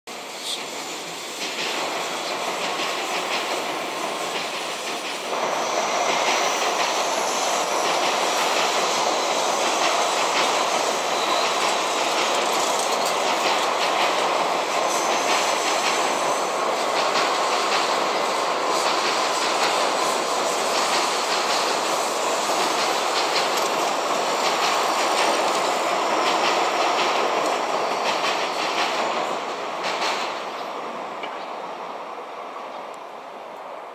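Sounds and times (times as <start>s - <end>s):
train wheels rolling on rails: 0.1s - 33.9s
faint high wheel squeal: 10.9s - 13.2s, 14.8s - 16.6s.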